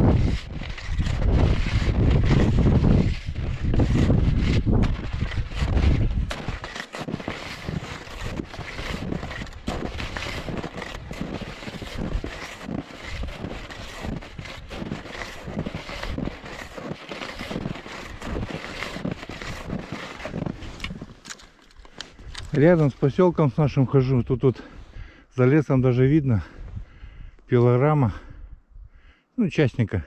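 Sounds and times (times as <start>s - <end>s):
wind on microphone: 0.0s - 6.7s
skis crunching on snow: 0.0s - 23.1s.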